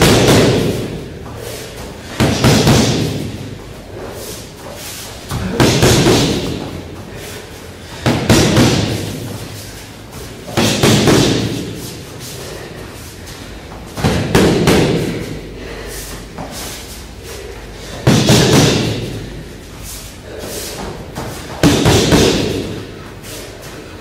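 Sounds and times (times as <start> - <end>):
gloved punches on focus mitts: 21.6 - 22.7.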